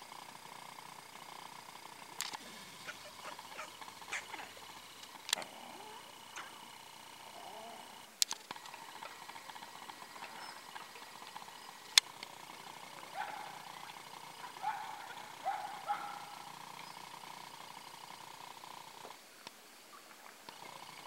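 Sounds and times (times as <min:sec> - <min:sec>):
faint steady hum: 0:00.0 - 0:21.0
short rising calls: 0:02.3 - 0:08.1.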